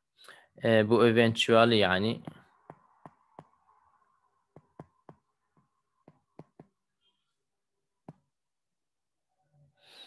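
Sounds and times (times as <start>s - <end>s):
stylus taps on tablet screen: 4.5s - 6.8s.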